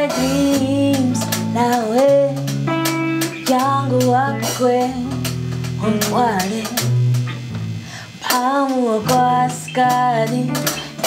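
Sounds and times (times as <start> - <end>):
woman singing: 0.0 - 7.2, 7.9 - 11.0
low bass notes: 0.0 - 8.3
plucked guitar: 0.0 - 11.0.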